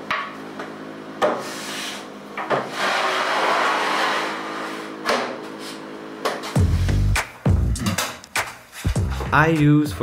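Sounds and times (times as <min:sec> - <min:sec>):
plywood scraping across bench: 0:01.4 - 0:05.8.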